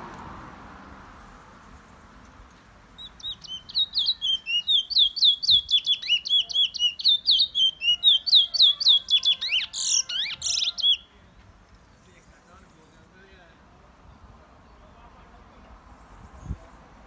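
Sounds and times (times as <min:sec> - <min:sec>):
songbird singing whistled notes: 0:03.0 - 0:11.1.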